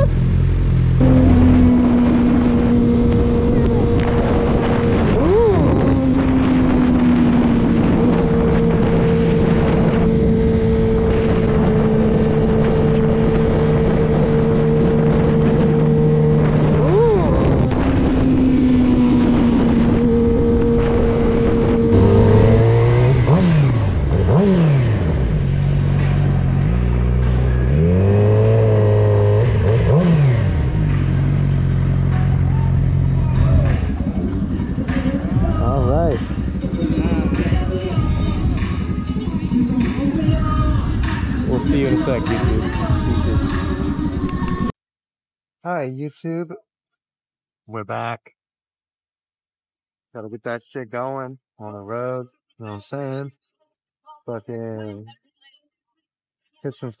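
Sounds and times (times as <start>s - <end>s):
motorcycle engine revving: 0.0s - 44.7s.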